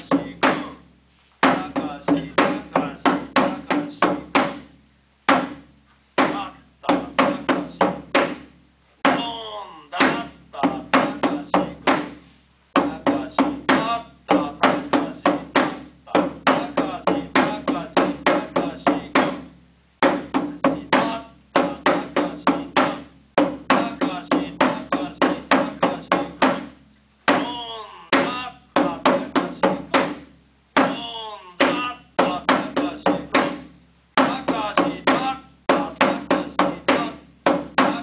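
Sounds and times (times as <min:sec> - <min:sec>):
taiko drum struck hard: 0:00.1 - 0:00.8, 0:01.4 - 0:04.7, 0:05.3 - 0:09.4, 0:10.0 - 0:12.2, 0:12.8 - 0:38.0
person shouting a call: 0:09.1 - 0:10.4, 0:27.4 - 0:28.7, 0:30.8 - 0:32.1.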